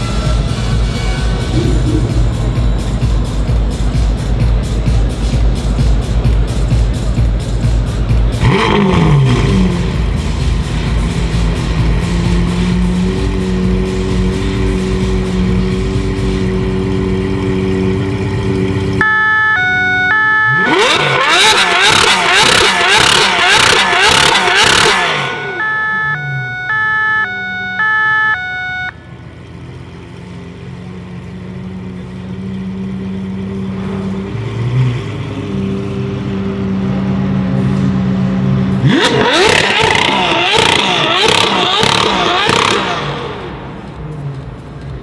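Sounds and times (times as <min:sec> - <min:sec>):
car engine revving and idling: 0:00.0 - 0:45.0.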